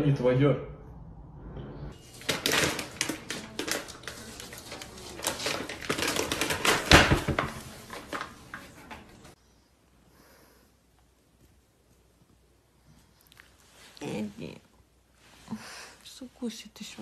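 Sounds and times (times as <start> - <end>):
plastic bag rustling: 2.0 - 9.4.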